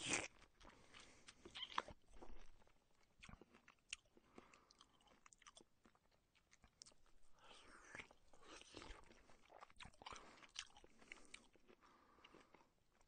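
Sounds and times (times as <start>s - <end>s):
person chewing and slurping: 3.2s - 12.7s.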